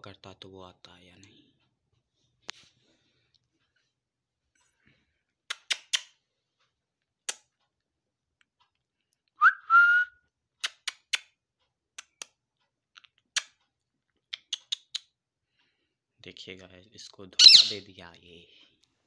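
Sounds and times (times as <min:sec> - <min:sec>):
rising whistle: 0:09.4 - 0:10.1.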